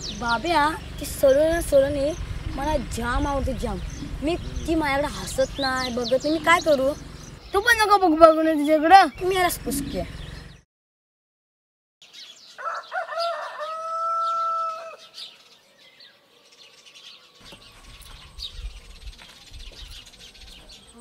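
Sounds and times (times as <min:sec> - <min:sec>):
low rumbling background: 0:00.0 - 0:07.9, 0:09.1 - 0:10.6
small birds chirping: 0:00.0 - 0:10.6, 0:12.0 - 0:21.0
rooster crowing: 0:12.6 - 0:15.3.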